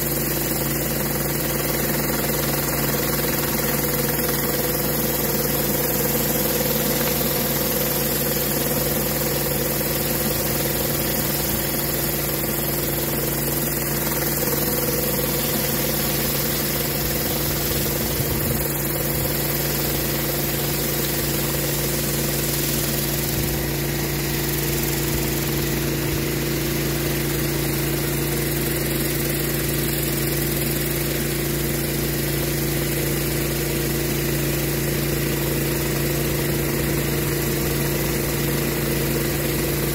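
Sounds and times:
pressure washer engine running: 0.0 - 39.9.

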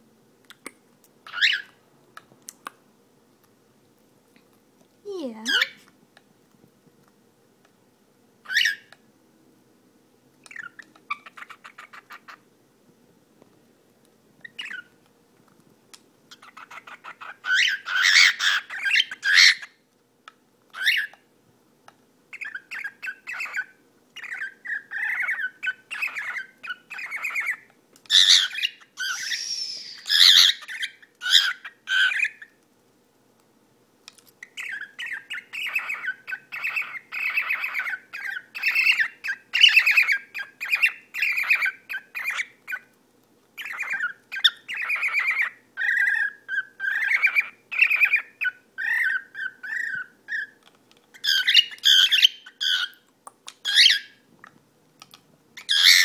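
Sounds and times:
cockatiel chattering calls: 1.3 - 1.7, 16.3 - 19.8, 22.4 - 32.5, 34.5 - 42.9, 43.6 - 53.0, 53.6 - 54.2, 55.6 - 56.0.

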